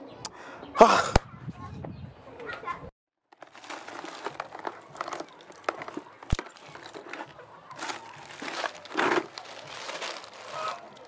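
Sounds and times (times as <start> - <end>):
hands rustling in plastic bucket: 3.4 - 11.0.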